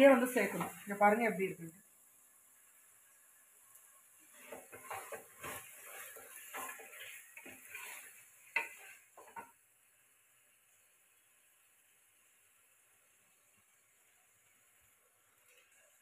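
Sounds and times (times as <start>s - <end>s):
masala sizzling: 0.0s - 16.0s
wooden spatula scraping a pot: 4.2s - 9.6s.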